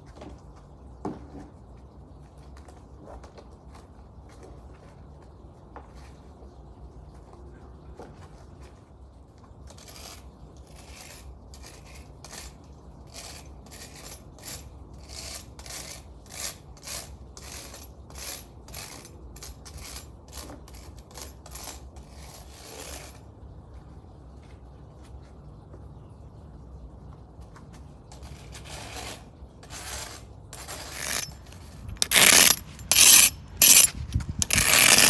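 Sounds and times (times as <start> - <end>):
hand tool scraping pavers: 9.6 - 23.2, 28.1 - 35.0.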